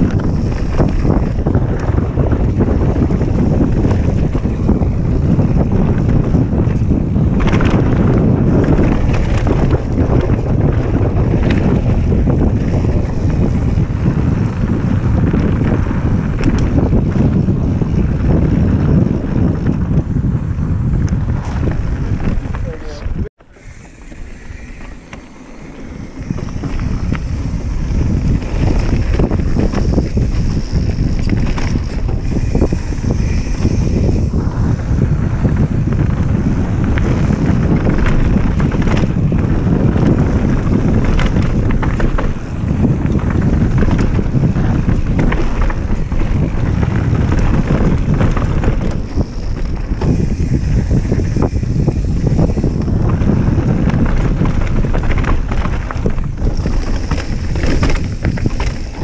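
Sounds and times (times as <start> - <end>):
bike rattling and knocking: 0.0 - 59.0
tyres rolling on dirt: 0.0 - 59.0
wind buffeting microphone: 0.0 - 59.0.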